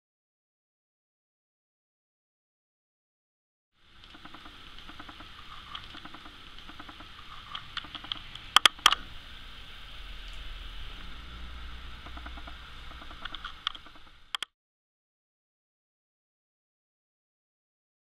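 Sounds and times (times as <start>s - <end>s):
steady hiss: 3.8s - 14.4s.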